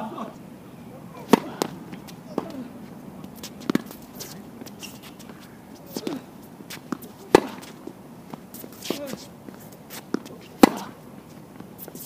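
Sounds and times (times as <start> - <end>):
tennis ball pops: 1.2 - 2.6, 3.6 - 3.9, 6.8 - 7.7, 10.1 - 10.9.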